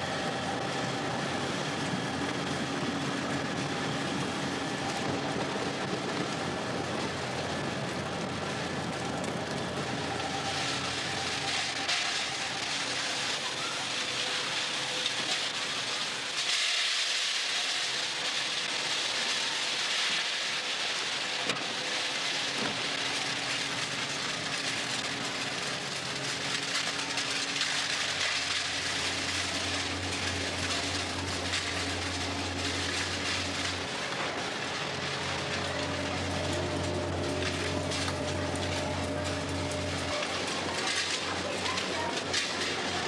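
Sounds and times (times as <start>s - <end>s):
low machinery hum: 0.0s - 43.0s
factory machinery hiss: 10.0s - 42.2s.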